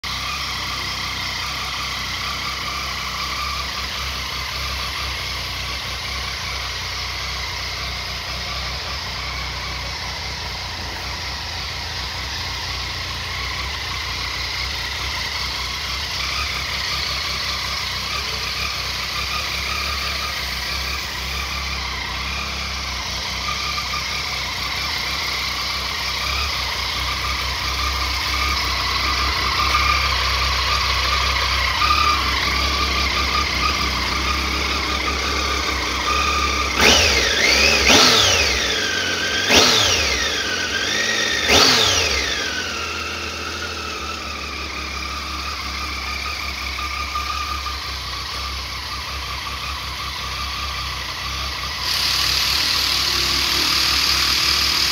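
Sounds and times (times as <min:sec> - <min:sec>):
motorcycle engine idling and revving: 0:00.0 - 0:54.9.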